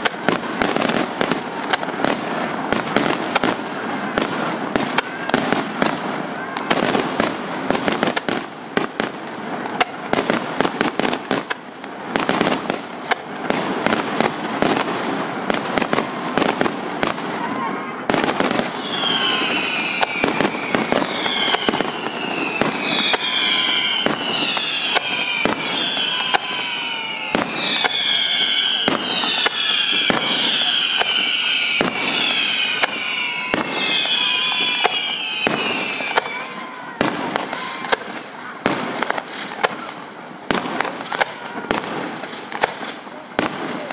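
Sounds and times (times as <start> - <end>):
fireworks bangs: 0.0 - 43.9
firework shells bursting: 18.2 - 38.2.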